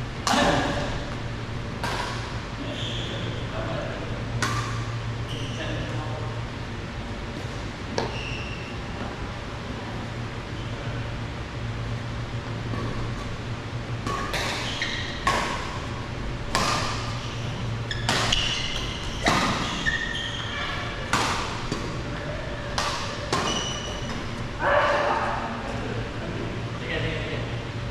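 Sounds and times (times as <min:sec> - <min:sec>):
rackets hitting shuttlecock: 0:01.8 - 0:02.4, 0:04.4 - 0:04.9, 0:14.0 - 0:20.1, 0:20.9 - 0:22.0, 0:22.6 - 0:24.4
short high squeaks: 0:05.3 - 0:05.6, 0:08.0 - 0:08.8, 0:14.6 - 0:15.2, 0:17.2 - 0:21.1, 0:23.4 - 0:24.1.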